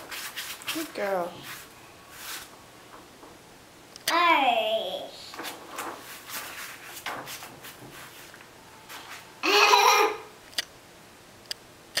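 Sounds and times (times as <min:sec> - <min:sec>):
soft rustles and knocks: 0:05.3 - 0:09.2
sharp click: 0:11.4 - 0:12.0.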